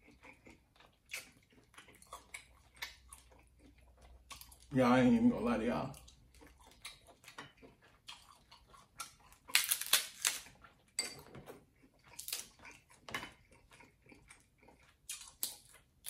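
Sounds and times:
crab shells cracking: 9.0 - 10.5.

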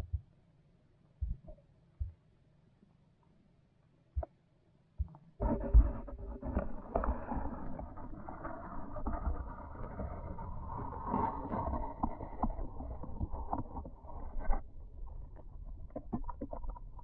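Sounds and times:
underwater knocks and clicks: 1.2 - 2.2, 5.0 - 17.0
underwater low rushing: 5.4 - 17.0.

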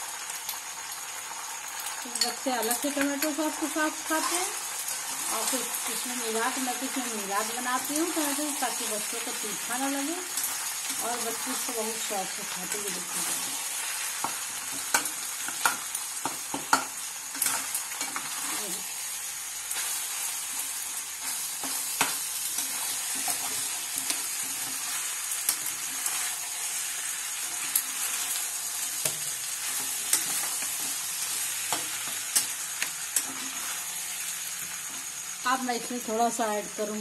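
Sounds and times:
pasta sizzling in a pan: 0.0 - 37.0
spatula scraping a pan: 4.2 - 5.3, 13.1 - 18.6, 19.7 - 34.3.

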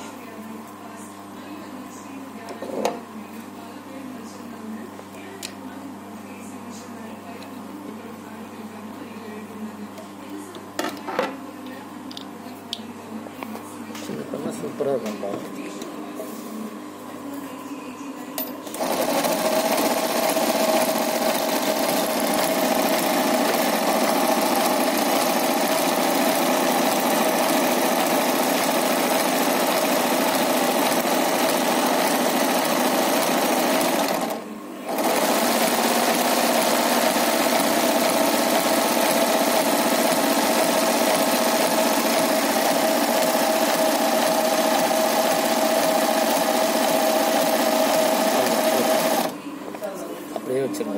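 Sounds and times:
sewing machine stitching: 18.7 - 49.3.

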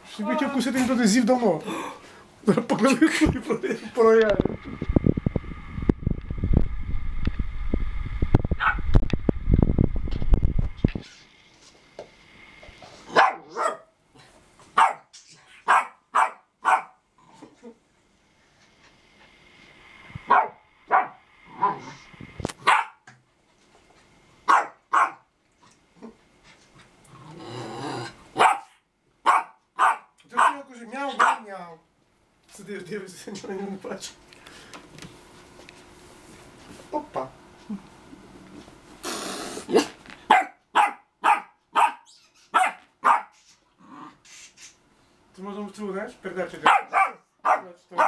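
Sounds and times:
dog barking: 8.6 - 8.8, 13.1 - 13.9, 14.8 - 17.0, 20.3 - 22.0, 22.6 - 23.0, 24.5 - 25.3, 28.4 - 31.5, 39.7 - 43.4, 46.6 - 48.0.

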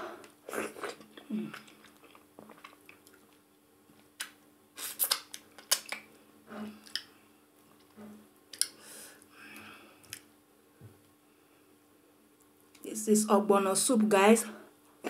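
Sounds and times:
soft wet squishes: 0.2 - 9.3
lip smacks and finger licking: 4.1 - 6.1.

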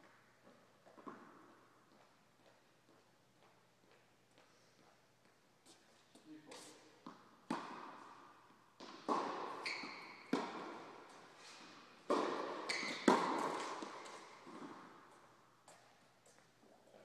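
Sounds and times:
tennis ball bouncing: 0.8 - 1.6, 7.0 - 15.9
racket hitting ball with echo: 7.0 - 15.9.

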